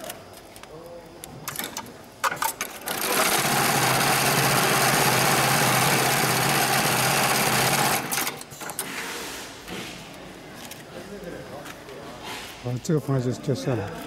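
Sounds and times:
sewing machine running fast: 2.8 - 8.4.

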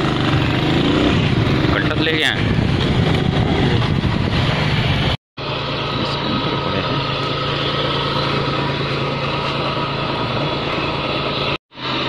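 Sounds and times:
vehicle engine idling: 3.7 - 12.0.

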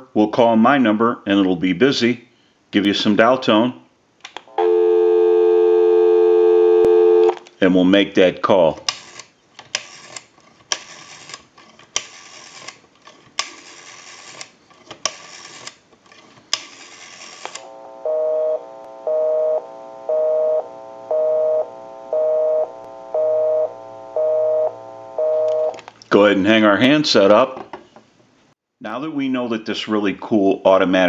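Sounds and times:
telephone busy signal: 4.5 - 7.4, 17.6 - 25.8
rotary dial pulse clicking: 16.5 - 25.8.

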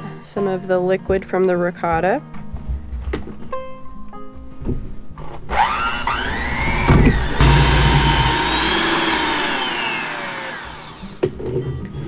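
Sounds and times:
electric hand mixer whine: 5.5 - 11.2.

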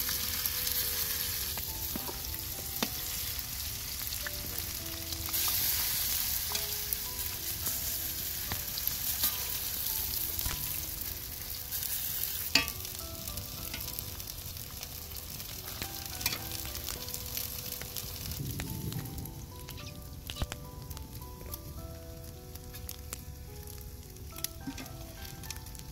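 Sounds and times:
patties sizzling in hot oil: 0.0 - 25.9
metal spoon tapping and scraping pan: 12.4 - 12.9.

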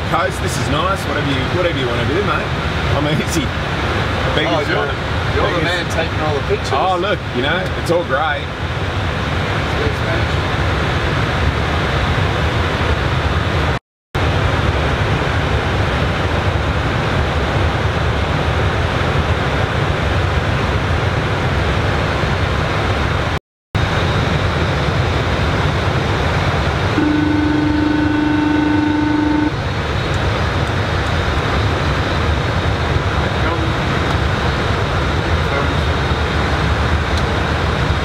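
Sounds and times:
cockpit airflow and engine noise: 0.0 - 38.0
low electronic tone: 26.9 - 29.6.

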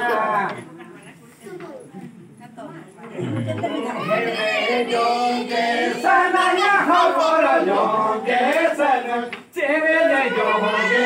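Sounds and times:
group of people singing: 3.2 - 11.0.

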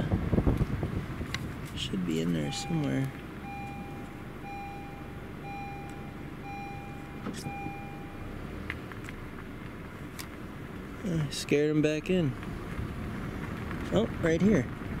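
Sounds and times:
low steady rumble: 0.0 - 15.0
vehicle warning beeps: 2.1 - 8.4.

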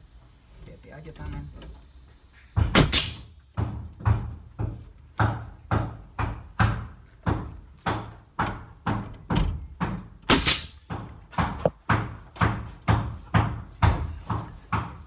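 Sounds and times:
nail gun firing into wood: 2.6 - 4.4, 10.2 - 11.7.

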